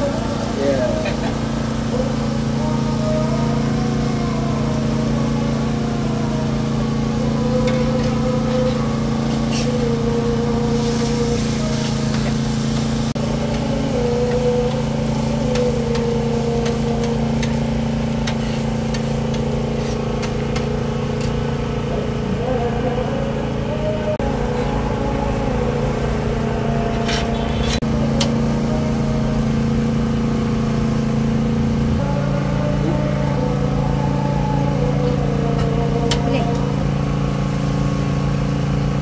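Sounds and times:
mechanical drone: 0.0 - 39.0
spatula and tongs on griddle: 6.6 - 21.5, 26.9 - 28.5.

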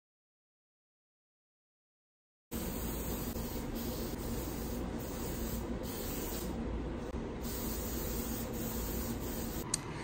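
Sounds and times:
aerosol spray can hissing: 2.6 - 6.5, 7.4 - 9.6.

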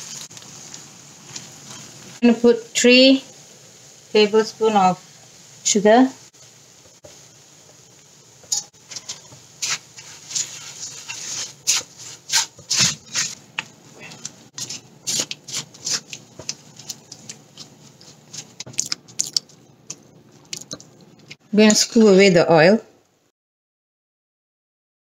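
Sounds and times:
spatula scraping a metal wok: 0.0 - 2.2, 8.4 - 18.7.

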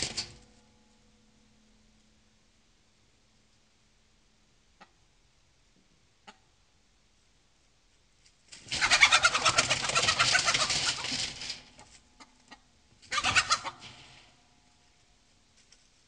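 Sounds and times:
wings beating against coop: 0.0 - 0.4, 8.5 - 14.3
chicken squawking: 8.7 - 11.4, 13.0 - 14.3.

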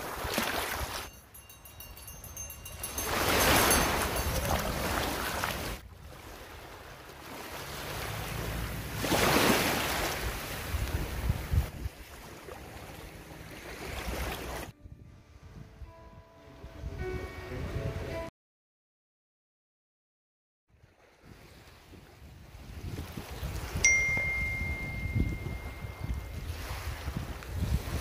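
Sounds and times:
small waves washing onto sand: 0.0 - 1.1, 2.7 - 14.7
wind buffeting microphone: 0.2 - 6.8, 10.0 - 18.1, 21.1 - 28.0.

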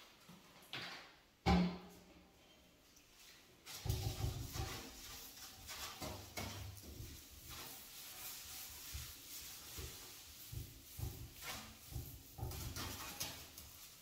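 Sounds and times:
sponge scrubbing glass: 3.6 - 14.0.

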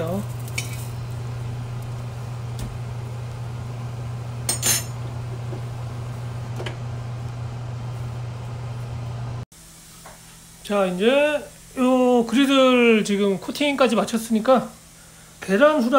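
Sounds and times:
steady low hum: 0.0 - 10.7
utensils clinking on cookware: 0.1 - 1.0, 4.5 - 5.0.

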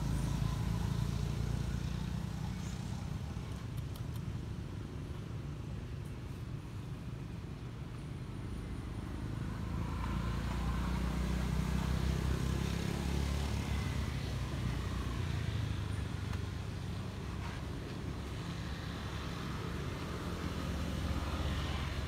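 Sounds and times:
vehicle engine passing: 9.2 - 22.0.

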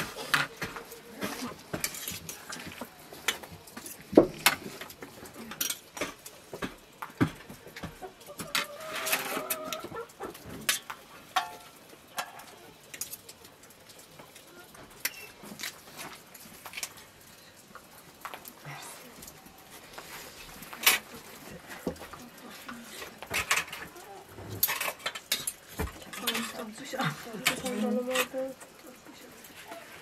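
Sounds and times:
dishes and utensils clinking: 10.5 - 12.6, 21.8 - 28.5.

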